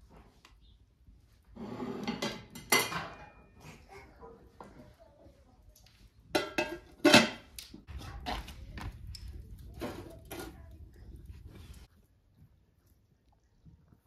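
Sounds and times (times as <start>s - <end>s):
cooking pot clanking on hotplate: 6.3s - 7.4s
wood fire rumbling: 6.8s - 13.4s.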